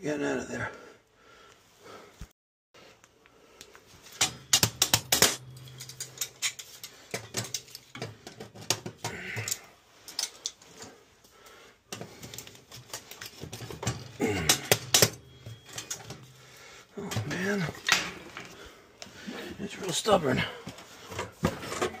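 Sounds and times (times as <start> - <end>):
metal hand tools clattering: 4.1 - 10.9, 11.9 - 18.6.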